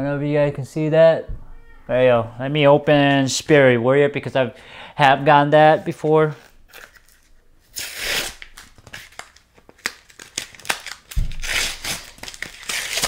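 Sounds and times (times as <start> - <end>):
low bump: 0.0 - 3.2
foil wrapper tearing and crinkling: 6.4 - 13.0.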